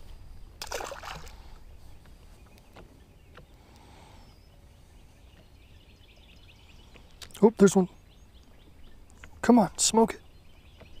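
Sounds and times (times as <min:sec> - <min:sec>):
wind rumble on microphone: 0:00.0 - 0:03.6
faint bird chirps: 0:01.6 - 0:11.0.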